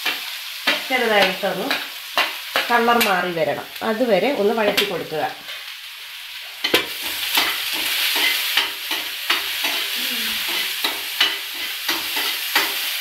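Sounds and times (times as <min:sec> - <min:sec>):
shallots and garlic sizzling in oil: 0:00.0 - 0:13.0.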